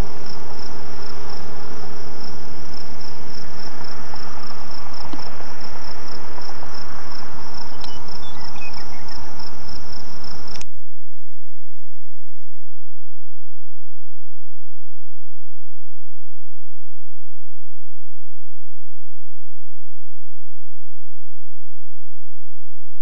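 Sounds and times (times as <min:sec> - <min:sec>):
crickets chirping: 0:00.0 - 0:10.6
constant hiss: 0:00.0 - 0:11.0.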